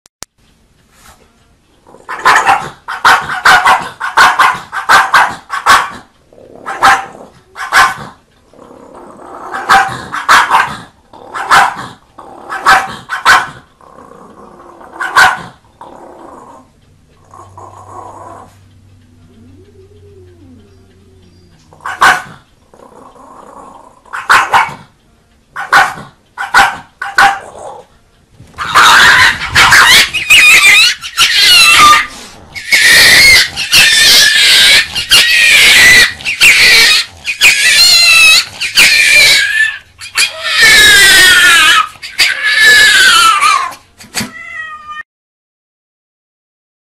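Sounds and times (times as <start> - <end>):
dog barking: 2.1 - 6.1, 6.7 - 8.2, 9.6 - 13.6, 15.0 - 15.6, 21.8 - 22.4, 24.1 - 24.9, 25.6 - 27.6, 28.6 - 32.1.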